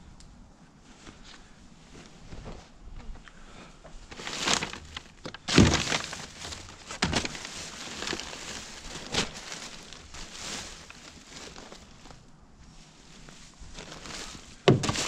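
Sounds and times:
objects rustling and crumpling: 4.0 - 15.0
knocks of handled objects: 14.7 - 15.0.

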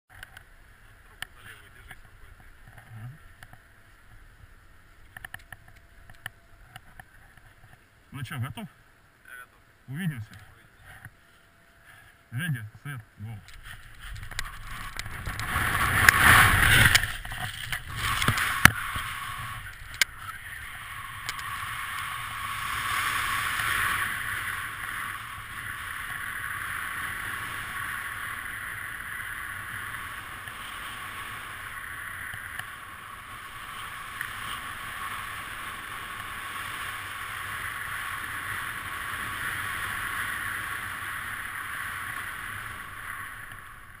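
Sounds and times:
wind rushing over microphone: 13.6 - 44.0.

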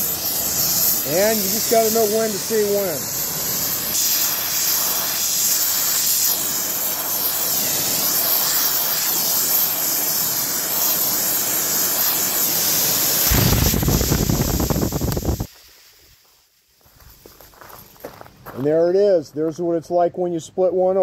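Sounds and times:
gas torch flame hissing: 0.0 - 17.4
metal pipe bursting open: 8.4 - 15.5
air rushing out: 10.1 - 16.3.

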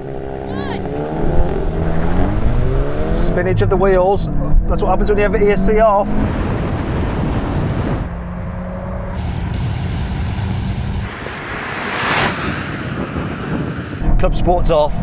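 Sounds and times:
cars accelerating hard: 0.0 - 14.0
wind noise on microphone: 5.8 - 8.2, 10.9 - 15.0
car passing by: 6.1 - 14.0.

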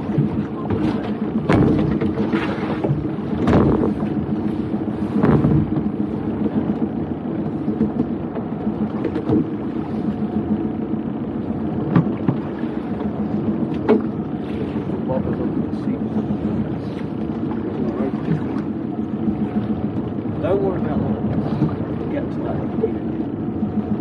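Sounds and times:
outboard motor running: 0.0 - 24.0
water noise: 0.0 - 24.0
wind: 0.0 - 24.0.

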